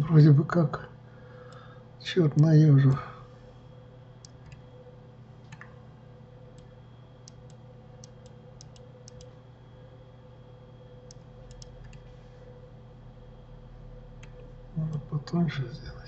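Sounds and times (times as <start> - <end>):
faint electrical hum: 0.0 - 16.0
computer mouse clicks: 4.2 - 4.7, 5.5 - 5.8, 6.5 - 9.4, 11.0 - 12.0.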